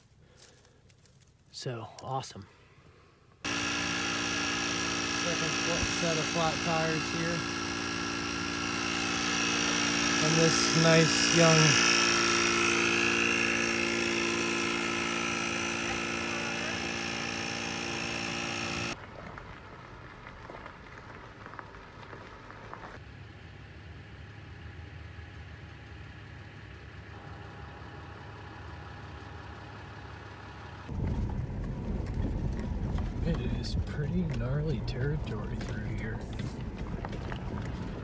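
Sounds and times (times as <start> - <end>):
small electric motor buzzing: 3.4 - 19.0
vehicle driving on gravel road: 4.6 - 38.0
faint rumble: 19.0 - 38.0.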